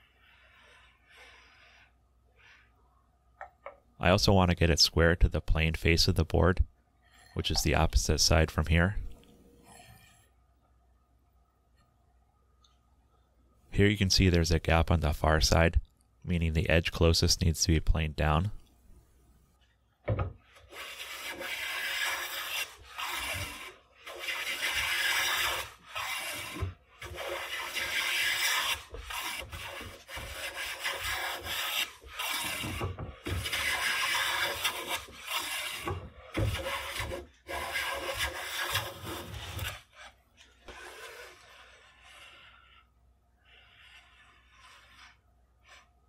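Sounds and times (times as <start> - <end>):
hand plane shaving wood: 0.0 - 2.7, 20.4 - 46.0.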